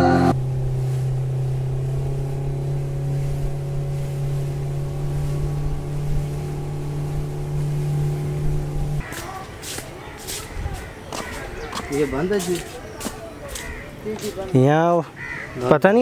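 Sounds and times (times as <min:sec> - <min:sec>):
music: 0:00.0 - 0:00.3
steady mechanical hum: 0:00.0 - 0:09.0.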